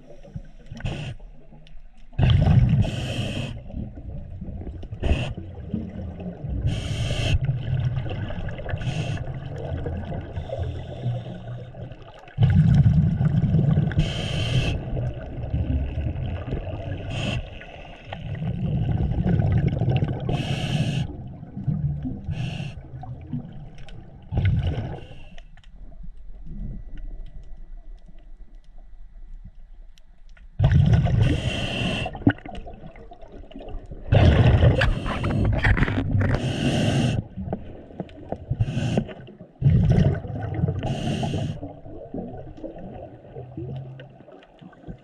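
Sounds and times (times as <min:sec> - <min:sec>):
underwater bubbling: 0:00.0 - 0:45.0
regulator inhale hiss: 0:00.2 - 0:01.4, 0:02.8 - 0:03.7, 0:05.0 - 0:05.4, 0:06.6 - 0:07.5, 0:08.8 - 0:09.3, 0:10.4 - 0:11.7, 0:13.9 - 0:15.0, 0:17.0 - 0:18.2, 0:20.3 - 0:21.2, 0:22.3 - 0:22.9, 0:25.0 - 0:25.6, 0:31.2 - 0:32.3, 0:34.8 - 0:35.6, 0:36.3 - 0:37.3, 0:38.6 - 0:39.2, 0:40.8 - 0:41.7.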